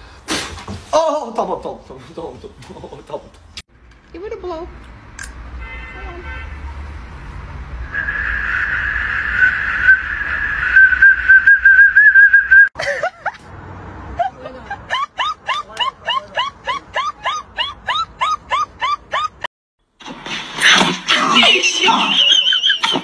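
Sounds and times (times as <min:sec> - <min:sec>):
shrill whistle tone: 0:07.9 - 0:12.7, 0:21.9 - 0:22.9.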